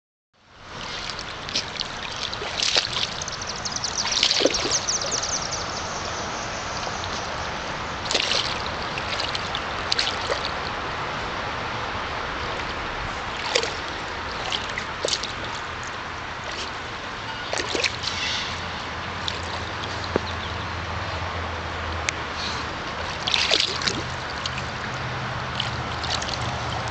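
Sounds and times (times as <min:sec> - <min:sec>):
dog splashing in water: 0:00.8 - 0:05.8, 0:06.6 - 0:10.7, 0:12.5 - 0:16.8, 0:17.4 - 0:20.4, 0:23.0 - 0:26.9.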